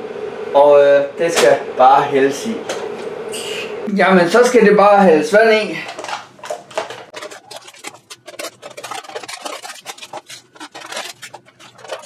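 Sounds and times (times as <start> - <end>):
crinkling and rustling plastic: 5.8 - 12.0.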